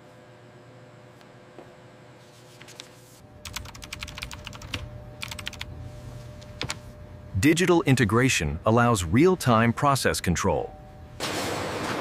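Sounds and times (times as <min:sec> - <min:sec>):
low hum: 0:03.2 - 0:11.6
typing on computer keyboard: 0:03.4 - 0:05.7.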